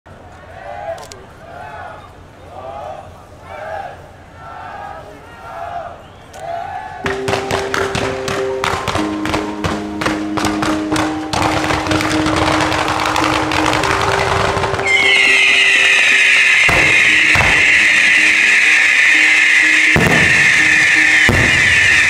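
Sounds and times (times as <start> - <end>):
music with sustained notes: 7.0 - 22.0
loud steady hiss: 14.7 - 22.0
fireworks launch pops: 16.7 - 17.9.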